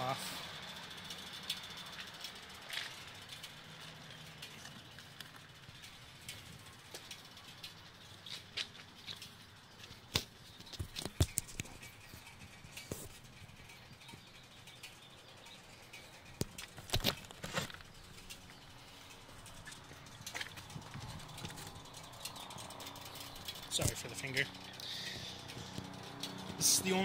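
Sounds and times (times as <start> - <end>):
handling clicks and knocks: 4.4 - 14.3, 15.9 - 18.6.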